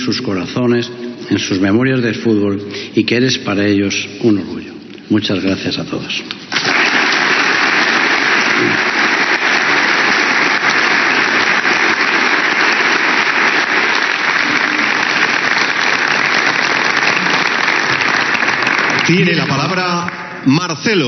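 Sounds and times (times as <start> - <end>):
crowd applauding: 6.5 - 20.2.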